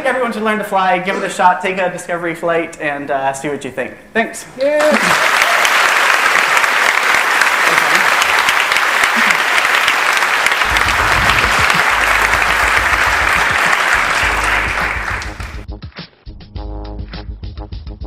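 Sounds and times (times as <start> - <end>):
audience applauding: 4.8 - 15.7
music with steady beat: 10.7 - 18.0.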